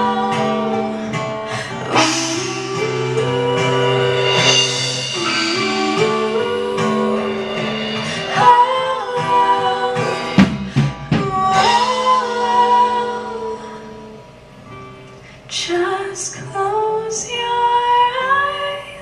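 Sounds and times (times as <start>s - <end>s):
woman singing long notes: 0.0s - 14.3s
strummed acoustic guitar: 0.0s - 18.8s.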